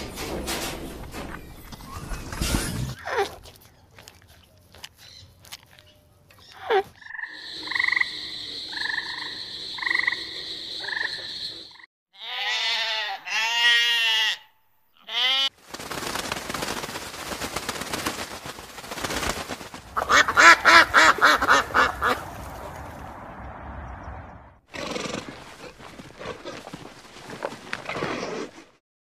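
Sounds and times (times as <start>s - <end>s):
sheep bleating: 12.2s - 15.5s
ducks quacking: 20.0s - 22.4s.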